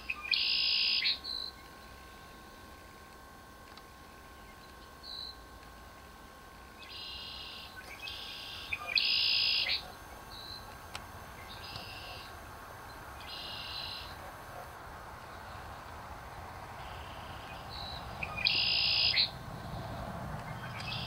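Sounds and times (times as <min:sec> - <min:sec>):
buzzy high-pitched animal calls: 0:00.0 - 0:01.6, 0:06.8 - 0:10.7, 0:11.3 - 0:15.8, 0:16.8 - 0:19.4.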